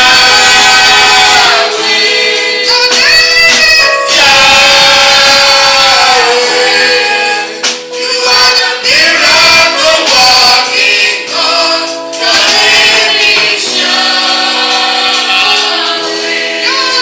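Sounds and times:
gospel voices singing: 0.0s - 17.0s
held instrumental chords: 0.0s - 17.0s.

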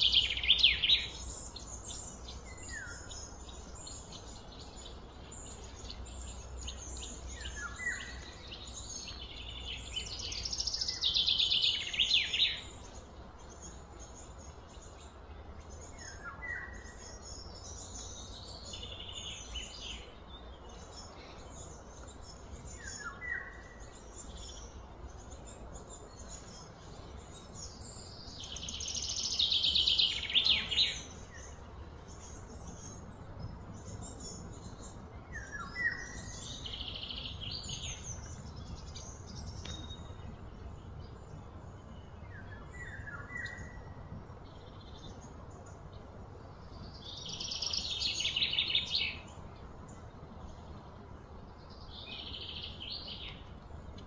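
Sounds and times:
bird chirps: 0.0s - 45.9s.

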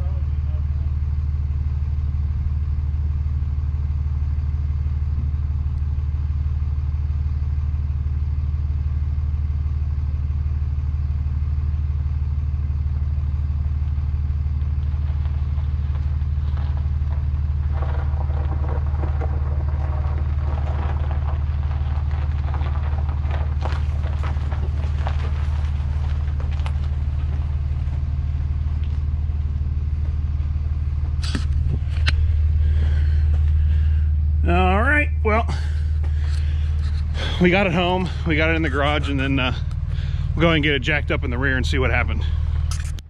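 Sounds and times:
engine idling: 0.0s - 43.0s
tyres crunching on gravel: 13.4s - 43.0s.

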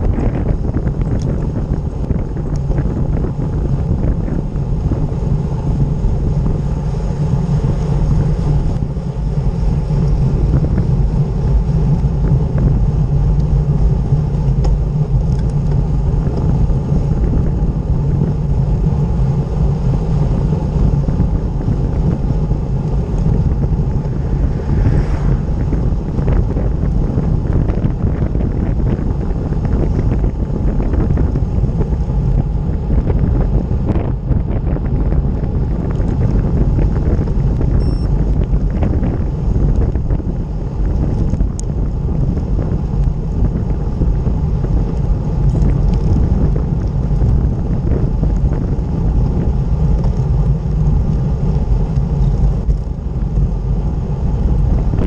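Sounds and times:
wind buffeting microphone: 0.0s - 55.0s.

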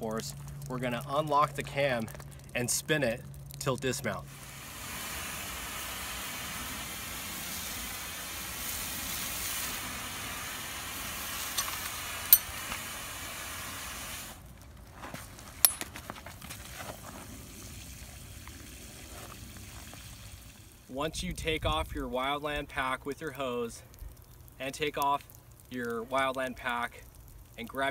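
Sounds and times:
water jet hissing from hose nozzle: 4.3s - 14.4s.

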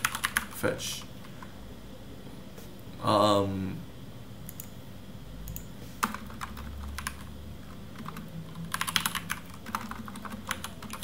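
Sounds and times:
computer keyboard typing: 0.0s - 0.6s, 4.5s - 4.7s, 5.5s - 11.0s.

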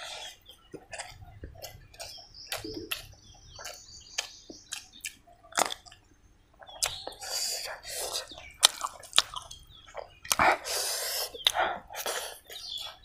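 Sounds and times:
wet chewing mouth sounds: 0.0s - 13.0s.

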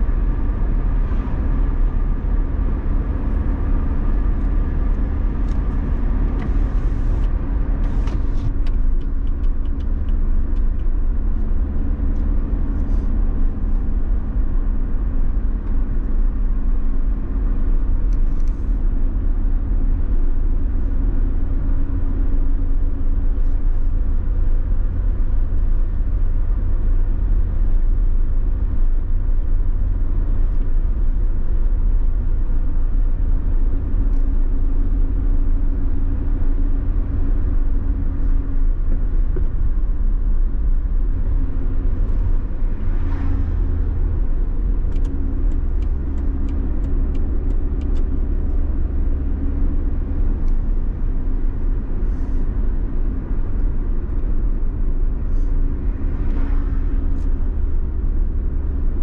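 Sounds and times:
car engine and road rumble: 0.0s - 59.0s.

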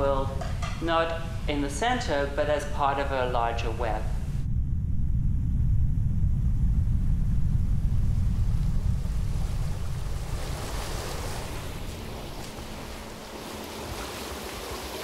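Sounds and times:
deep low rumble: 0.0s - 13.4s
creek water rushing over rocks: 11.1s - 15.0s.

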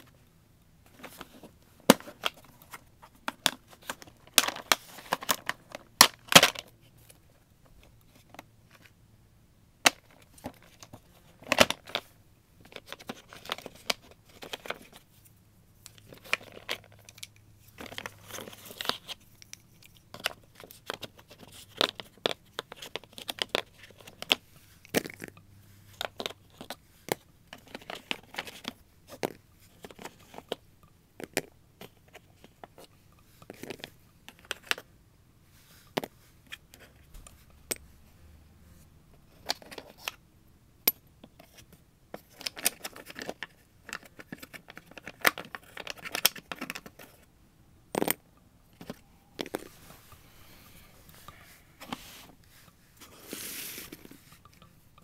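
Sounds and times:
pastel sticks clicking and knocking: 0.9s - 7.2s, 9.8s - 15.0s, 15.8s - 34.9s, 35.8s - 37.9s, 40.9s - 47.3s, 47.9s - 49.8s, 51.1s - 55.0s
paper rustling: 51.1s - 54.4s.

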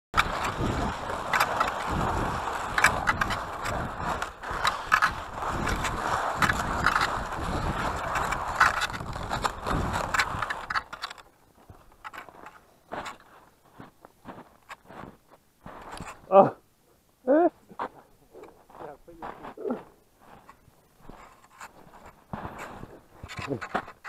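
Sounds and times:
ski poles clicking into snow: 0.1s - 13.7s, 14.5s - 15.0s, 15.7s - 16.4s, 20.4s - 24.0s
skis gliding on crusty snow: 0.1s - 16.5s, 17.4s - 24.0s.

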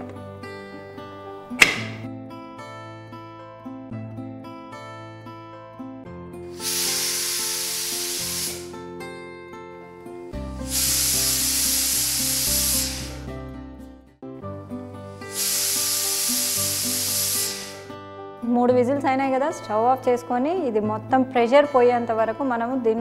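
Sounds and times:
background music: 0.0s - 23.0s
pressure cooker whistling: 6.6s - 8.8s, 10.6s - 13.3s, 15.2s - 18.0s.

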